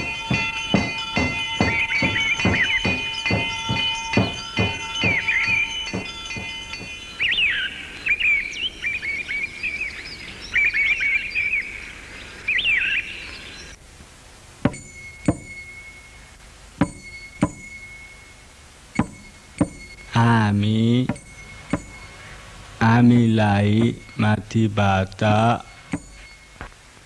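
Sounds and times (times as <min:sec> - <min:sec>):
sharp ringing clinks: 0:00.0 - 0:08.0, 0:14.7 - 0:26.7
birds chirping: 0:00.0 - 0:13.9, 0:14.6 - 0:27.0.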